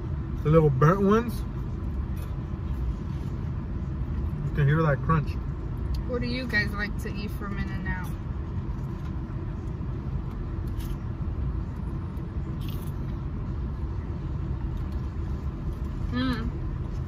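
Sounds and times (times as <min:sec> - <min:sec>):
car engine rumble in cabin: 0:00.0 - 0:17.0
person eating crunchy food: 0:10.6 - 0:11.0, 0:12.6 - 0:13.0.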